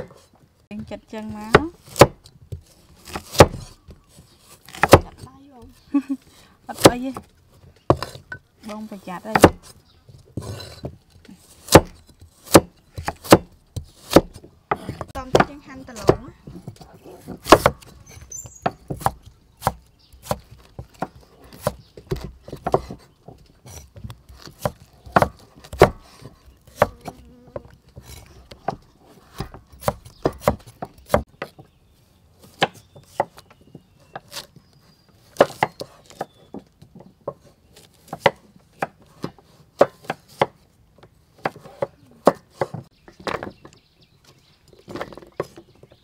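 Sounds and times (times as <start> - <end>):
cleaver chopping on wooden board: 1.2 - 5.7, 6.7 - 7.3, 7.9 - 8.4, 9.2 - 9.8, 10.4 - 23.1, 23.7 - 31.6, 35.2 - 40.6, 41.4 - 43.5.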